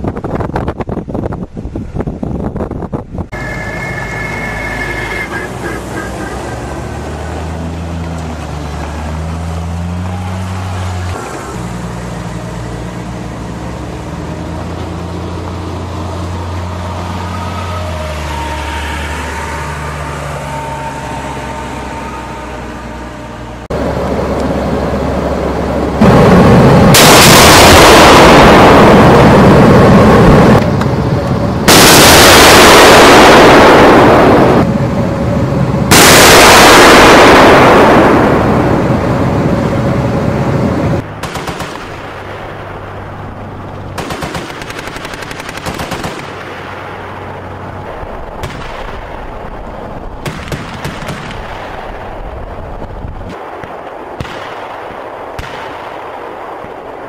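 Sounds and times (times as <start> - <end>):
low vehicle rumble: 0.0 - 55.6
sharp gunshots: 26.0 - 29.6, 31.7 - 34.6, 35.9 - 38.8, 41.2 - 42.7, 43.9 - 47.1, 48.4 - 49.4, 50.1 - 52.3, 53.3 - 57.0
gunfire bursts: 31.7 - 34.2, 41.2 - 42.2, 44.0 - 46.5, 50.2 - 51.9.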